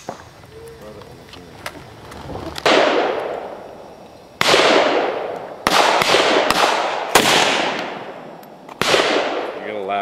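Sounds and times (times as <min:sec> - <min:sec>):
rifle shots with echoing decay: 0:02.6 - 0:03.6, 0:04.4 - 0:09.8.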